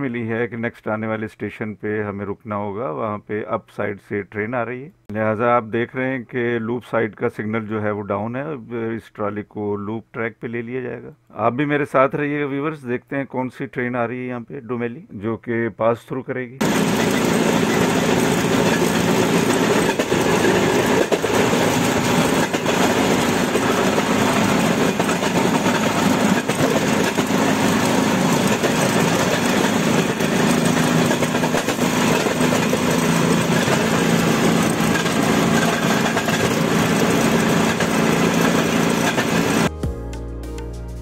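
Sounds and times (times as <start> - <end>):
motor trolley engine hum: 16.6 - 39.7
steel wheels rumbling on rails: 16.6 - 39.7
wheels clacking over rail joints: 16.6 - 39.7.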